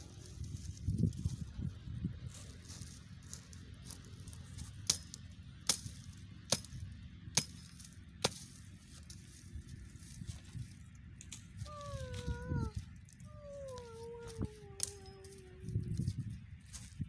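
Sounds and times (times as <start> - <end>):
hatchet chopping shrub: 4.6 - 9.4.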